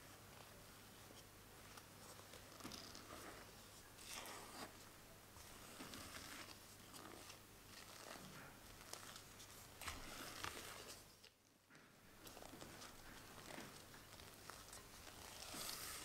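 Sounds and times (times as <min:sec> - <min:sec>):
spatula swishing batter in bowl: 0:02.6 - 0:11.2, 0:12.2 - 0:16.0.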